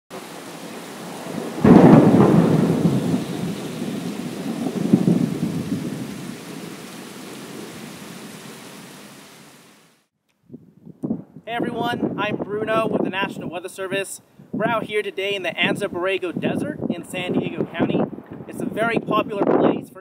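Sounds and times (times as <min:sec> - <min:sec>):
steady rain: 0:00.1 - 0:10.1
thunder clap and rumble: 0:00.2 - 0:08.4, 0:16.7 - 0:19.7.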